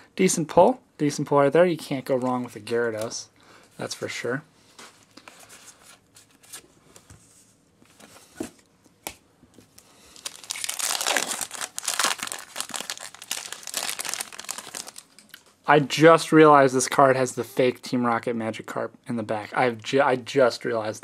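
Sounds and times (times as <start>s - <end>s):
foil wrapper crinkling and tearing: 10.1s - 15.5s.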